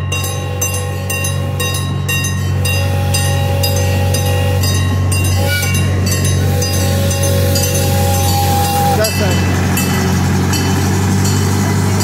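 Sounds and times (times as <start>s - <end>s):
railroad crossing bell ringing: 0.0s - 12.0s
train engine rumble: 0.0s - 12.0s.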